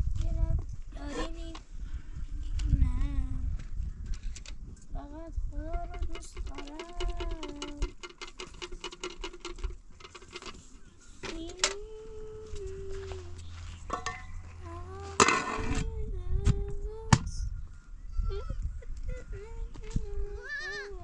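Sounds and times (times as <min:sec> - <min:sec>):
loud scrape or rustle: 0:13.4 - 0:15.8.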